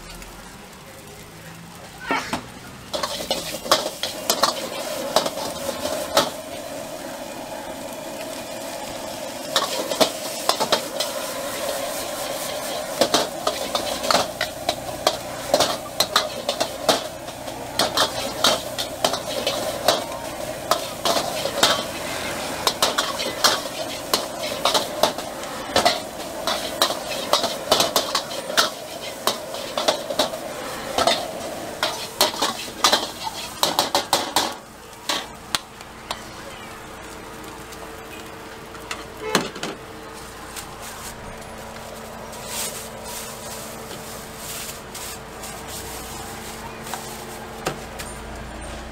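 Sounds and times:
food sizzling in a wok: 0.0 - 48.9
metal utensils clanking on wok: 2.0 - 6.8, 9.1 - 35.4.

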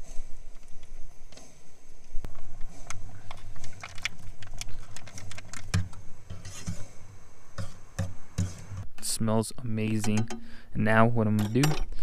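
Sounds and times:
steady low hum: 0.0 - 12.0
metal spoon scraping a saucepan: 6.3 - 6.9.

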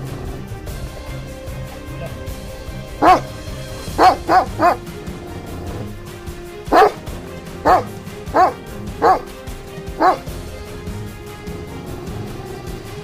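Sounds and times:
background music: 0.0 - 13.0
dog barking: 1.6 - 6.0, 6.7 - 10.3.

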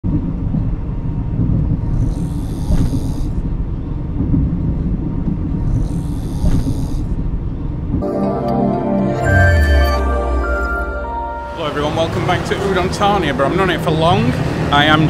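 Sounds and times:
train carriage rumble: 0.1 - 8.2
person snoring: 1.9 - 3.4, 5.7 - 7.2.

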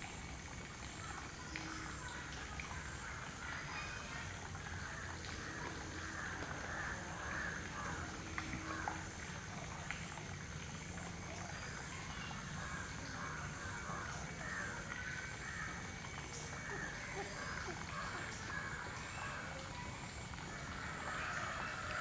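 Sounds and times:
outdoor background noise: 0.0 - 22.0
faint bird calls: 11.3 - 22.0.

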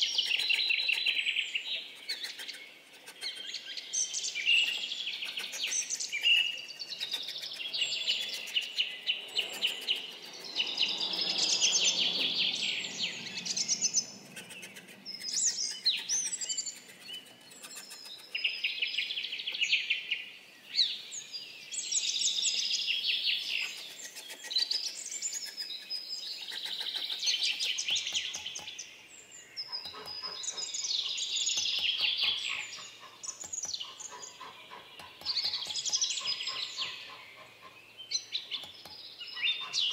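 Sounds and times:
songbirds singing: 0.0 - 39.9
light regular tapping: 35.0 - 36.2.

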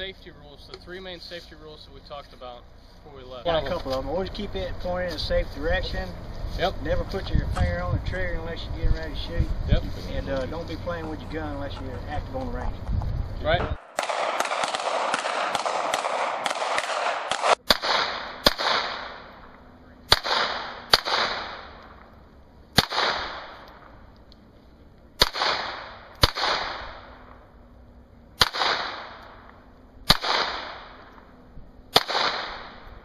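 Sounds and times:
crackling noise: 0.0 - 33.0
pistol shots with echo: 13.7 - 19.3, 20.1 - 22.0, 22.8 - 23.7, 25.2 - 27.2, 28.4 - 29.4, 30.1 - 31.1, 31.9 - 32.8.

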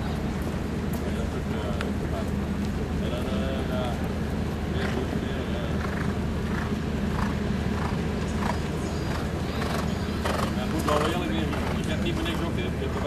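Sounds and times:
horse cantering on sand: 4.7 - 13.0.

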